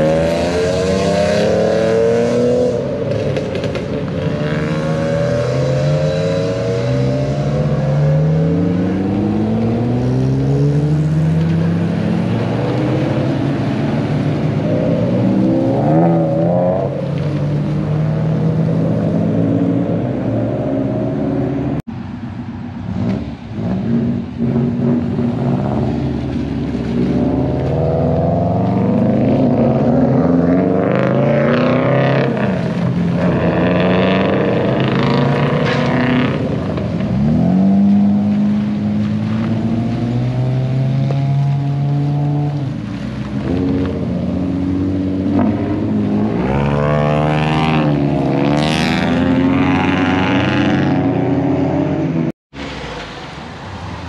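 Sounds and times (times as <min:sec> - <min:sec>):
sports car engines revving: 0:00.0 - 0:54.0.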